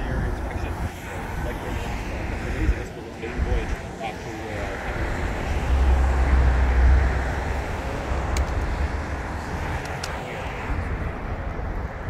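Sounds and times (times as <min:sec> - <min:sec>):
heavy low rumble: 0:00.0 - 0:12.0
highway traffic noise: 0:00.0 - 0:12.0.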